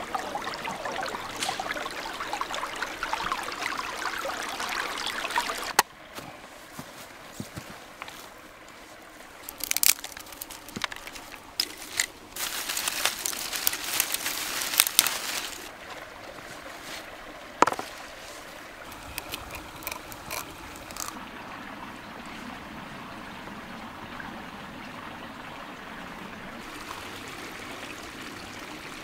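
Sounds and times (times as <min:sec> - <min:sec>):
stream running: 0:00.0 - 0:29.0
close crunching and crackling: 0:09.4 - 0:15.7, 0:18.9 - 0:21.2.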